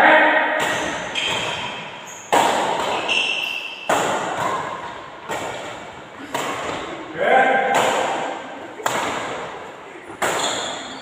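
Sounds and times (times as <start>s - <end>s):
racket hitting shuttlecock: 0.6s - 7.0s, 7.6s - 11.0s.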